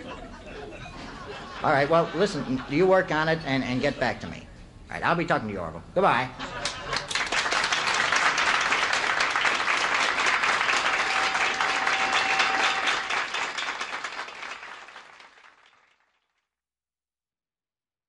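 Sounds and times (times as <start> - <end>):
audience applauding: 6.6 - 16.3.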